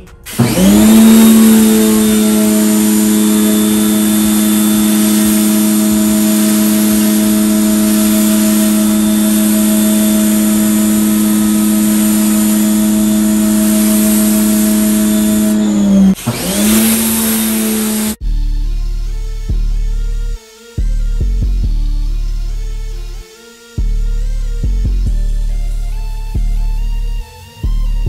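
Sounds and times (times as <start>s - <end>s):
water spray hissing: 0.0s - 18.2s
pressure washer motor hum: 0.0s - 27.4s.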